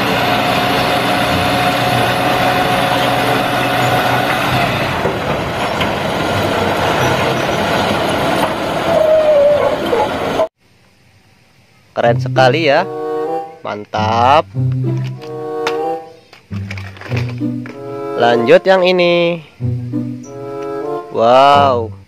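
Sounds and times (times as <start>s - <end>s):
diesel truck engine running: 0.0s - 10.5s.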